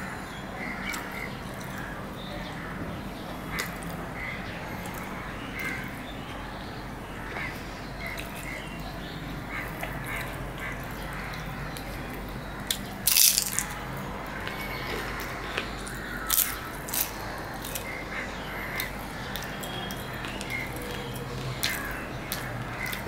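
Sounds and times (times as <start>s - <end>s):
bread tearing: 13.0s - 13.8s.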